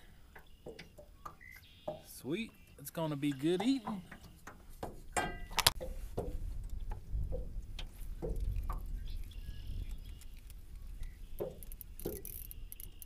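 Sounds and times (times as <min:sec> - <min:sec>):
wind rumbling on microphone: 0:04.8 - 0:13.0.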